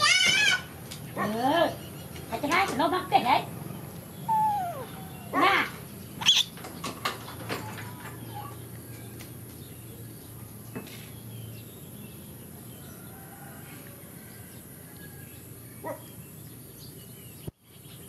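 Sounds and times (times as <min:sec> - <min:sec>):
baby monkeys squeaking: 0:04.1 - 0:06.7.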